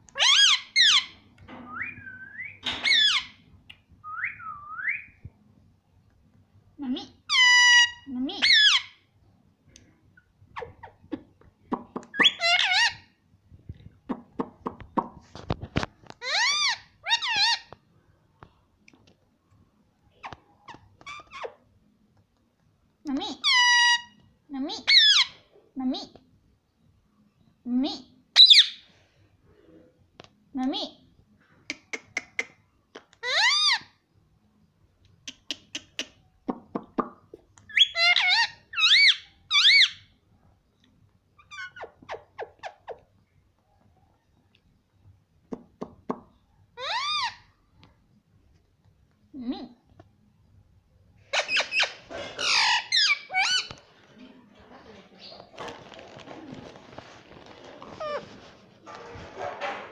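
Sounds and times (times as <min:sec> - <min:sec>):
parakeet calling: 0:02.6 - 0:03.4, 0:51.3 - 0:53.8.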